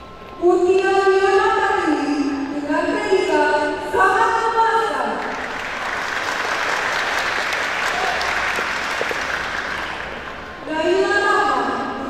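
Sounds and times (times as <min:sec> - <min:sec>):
audience applauding: 0:05.2 - 0:10.7.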